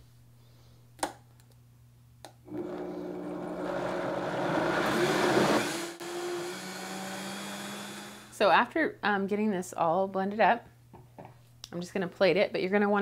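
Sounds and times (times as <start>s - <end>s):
blender motor pureeing soup: 2.5s - 8.4s.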